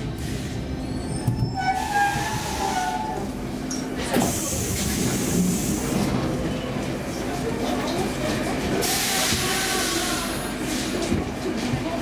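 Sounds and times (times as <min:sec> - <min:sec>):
metro train low running hum: 0:00.0 - 0:12.0.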